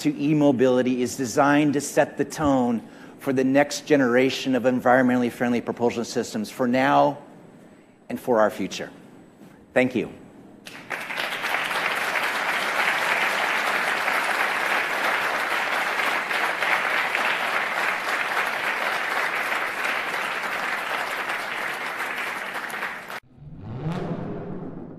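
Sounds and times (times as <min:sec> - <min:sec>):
audience applauding: 0:10.7 - 0:23.2.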